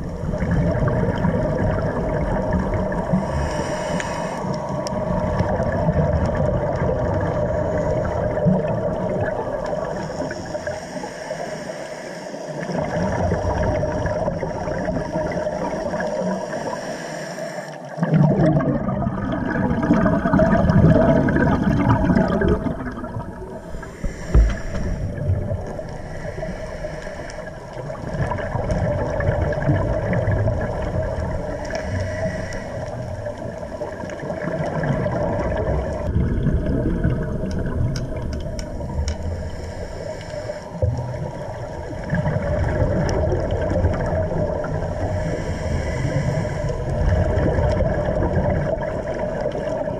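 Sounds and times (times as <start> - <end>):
underwater regulator bubbling: 17.9 - 49.9.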